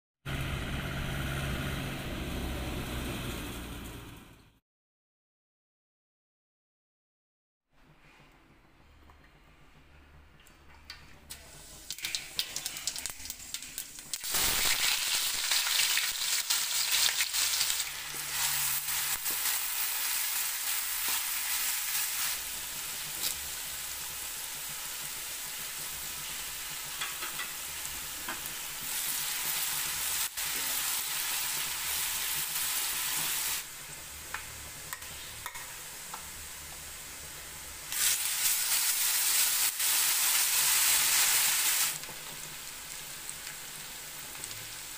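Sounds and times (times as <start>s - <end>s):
food sizzling in hot oil: 11.4s - 44.9s.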